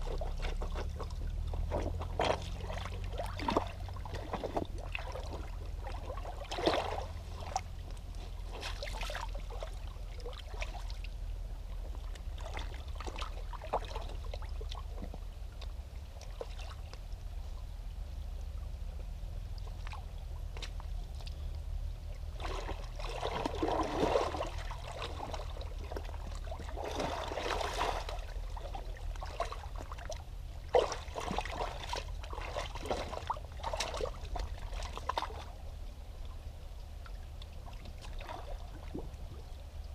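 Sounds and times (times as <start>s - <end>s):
feet splashing in stream: 0.0s - 11.2s, 12.0s - 15.2s, 22.2s - 35.7s.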